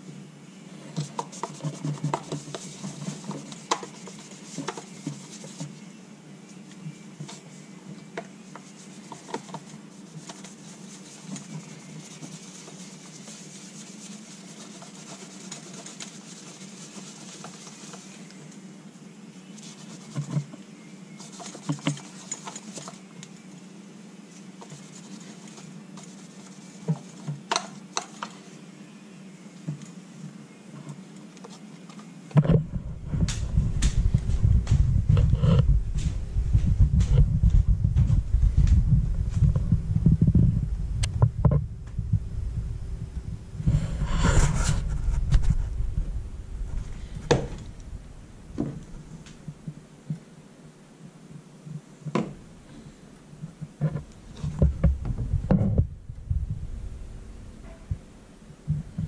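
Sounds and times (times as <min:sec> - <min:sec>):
steady low hum: 0:00.0 - 0:59.0
cloth wiping solar panel: 0:00.7 - 0:18.7, 0:19.4 - 0:23.2, 0:24.2 - 0:28.6, 0:42.0 - 0:49.8.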